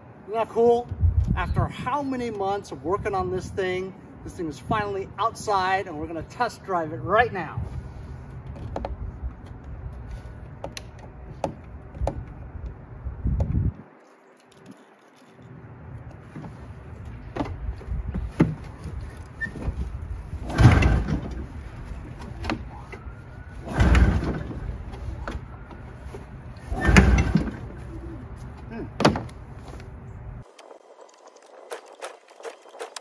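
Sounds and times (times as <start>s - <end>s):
recoil starter pulls cranking engine: 23.6s - 24.6s.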